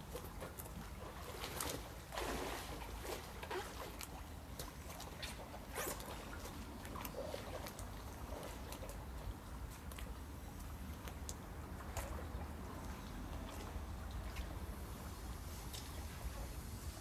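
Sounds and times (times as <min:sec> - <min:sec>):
water lapping against paddleboard: 0:00.0 - 0:16.7
larger water splash: 0:01.4 - 0:03.4.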